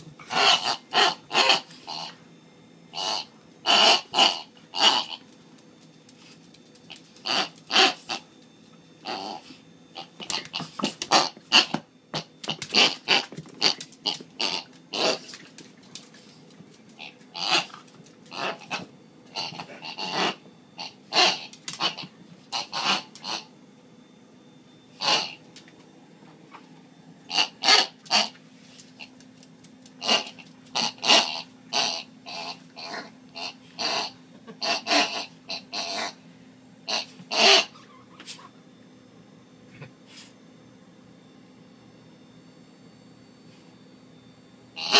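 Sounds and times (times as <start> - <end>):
squeaky dog toy: 0.3 - 2.1, 3.0 - 5.2, 7.2 - 8.2, 17.0 - 17.7, 19.4 - 23.5, 25.0 - 25.4, 27.3 - 28.4, 30.0 - 36.2, 36.9 - 38.2
dog chewing toy: 3.0 - 5.2, 10.0 - 16.2, 16.9 - 23.4, 30.0 - 36.1.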